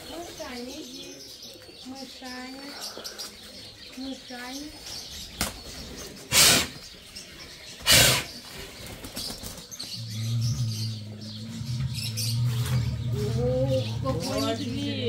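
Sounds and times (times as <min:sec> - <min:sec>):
birds chirping faintly: 0:00.0 - 0:15.0
bear huffing: 0:06.3 - 0:06.8, 0:07.8 - 0:08.4.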